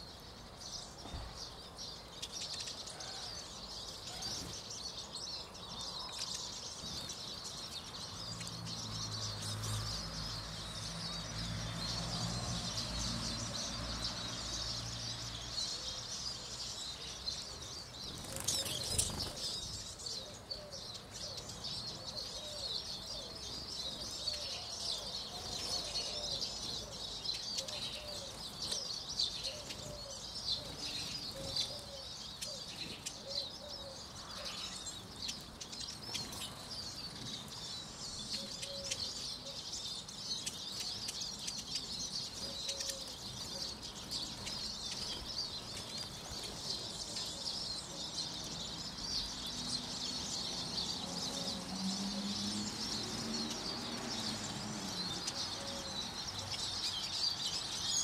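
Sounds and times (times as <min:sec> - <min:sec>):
flock of birds twittering: 0:00.0 - 0:58.0
wings fluttering: 0:18.1 - 0:19.7.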